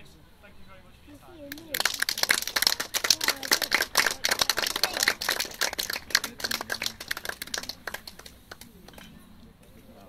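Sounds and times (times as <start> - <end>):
audience applauding: 1.5 - 9.0.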